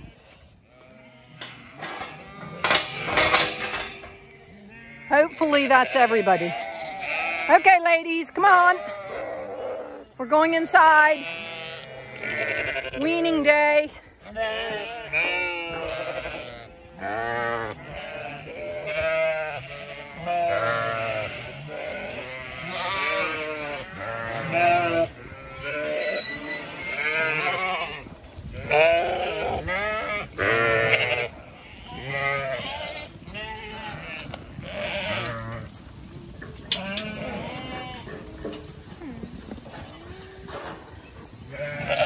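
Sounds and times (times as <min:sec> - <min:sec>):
sheep bleating: 0:04.1 - 0:10.1, 0:11.0 - 0:13.4, 0:14.2 - 0:35.7, 0:36.7 - 0:38.2, 0:41.5 - 0:42.0.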